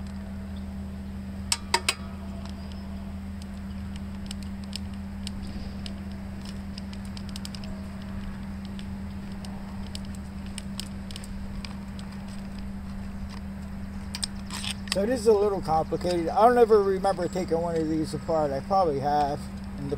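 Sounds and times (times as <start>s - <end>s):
steady low hum: 0.0s - 19.9s.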